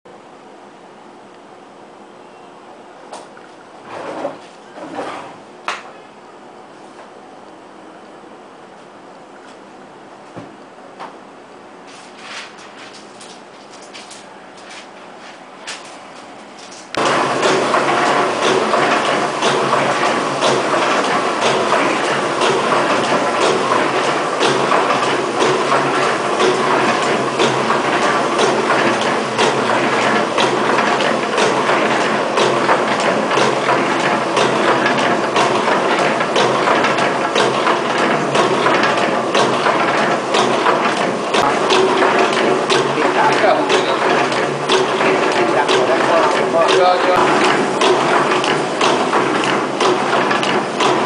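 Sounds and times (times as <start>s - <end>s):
machine clattering: 16.6s - 51.0s.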